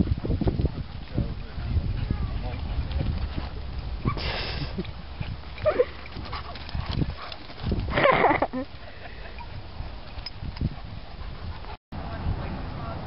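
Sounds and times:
paws thudding on dirt: 0.0s - 8.4s.

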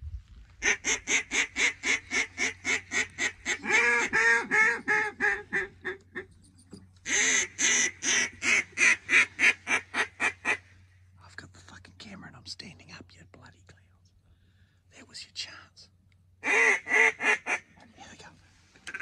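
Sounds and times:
duck call quacks: 0.6s - 6.2s, 7.0s - 10.6s, 16.4s - 17.6s.

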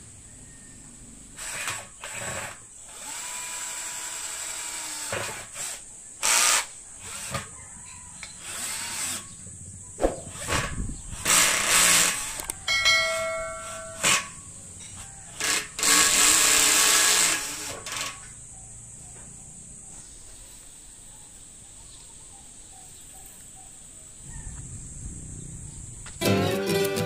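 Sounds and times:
cordless drill driving screws: 1.4s - 7.6s, 8.3s - 9.2s, 11.2s - 12.6s, 15.4s - 18.3s.

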